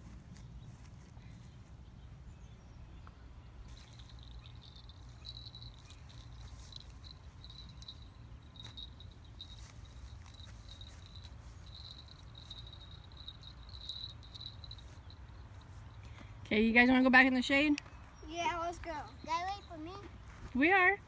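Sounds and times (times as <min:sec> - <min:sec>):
high thin chirping: 0:03.7 - 0:16.2.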